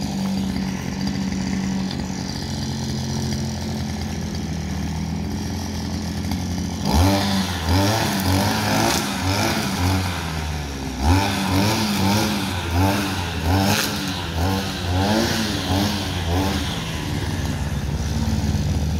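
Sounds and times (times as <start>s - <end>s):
brushcutter engine revving: 0.0s - 18.9s.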